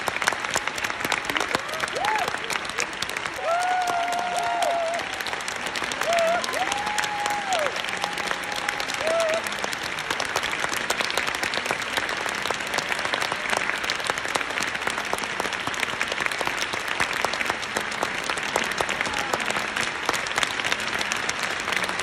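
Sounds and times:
audience applauding: 0:00.0 - 0:22.0.

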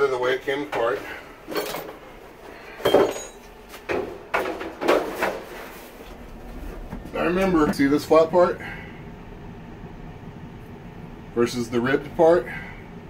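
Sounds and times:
dryer drum knocks and clunks: 0:03.8 - 0:05.5.

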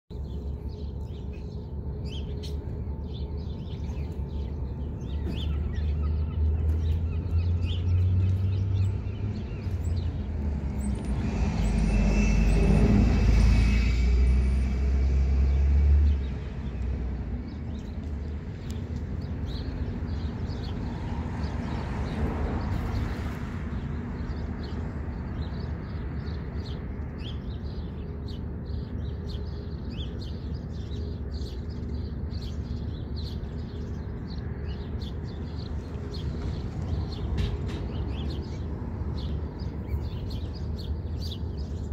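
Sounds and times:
small birds chirping: 0:00.1 - 0:12.4, 0:15.5 - 0:41.9
vehicle rumble passing: 0:01.6 - 0:27.2.

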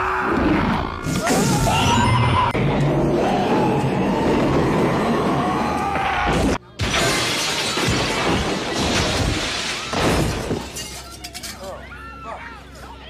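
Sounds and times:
glass shattering: 0:06.8 - 0:11.7.

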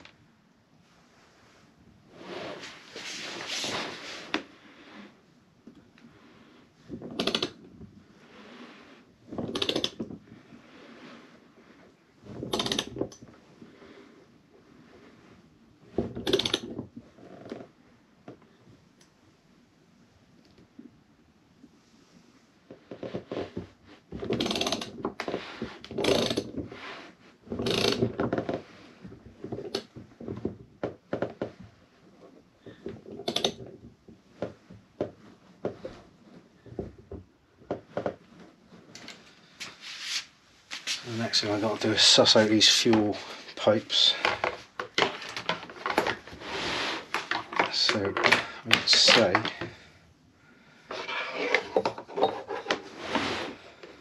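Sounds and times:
tool scraping rustle: 0:02.1 - 0:04.8, 0:38.8 - 0:49.7, 0:50.9 - 0:53.8.

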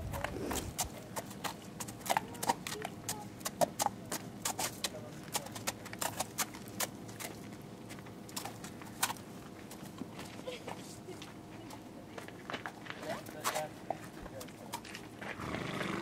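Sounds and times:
hooves crunching on frozen snow: 0:00.0 - 0:16.0.

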